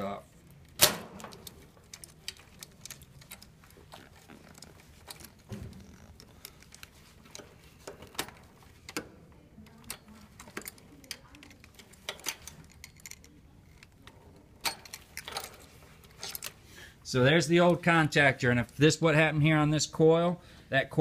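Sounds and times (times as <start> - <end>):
pliers clicking on metal terminals: 9.7 - 15.6.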